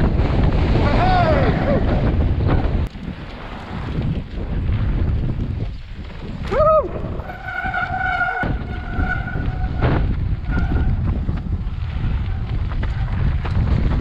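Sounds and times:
bike tyres rumbling on dirt: 0:00.0 - 0:14.0
wind on microphone: 0:00.0 - 0:14.0
high squealing tone: 0:07.2 - 0:11.0.

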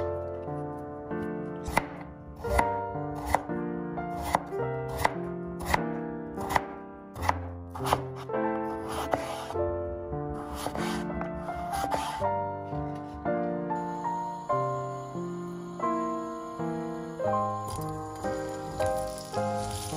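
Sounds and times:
background music held notes: 0:00.0 - 0:19.9
knife slicing potatoes: 0:01.6 - 0:03.5, 0:04.1 - 0:05.8, 0:06.4 - 0:09.6, 0:10.4 - 0:12.2.

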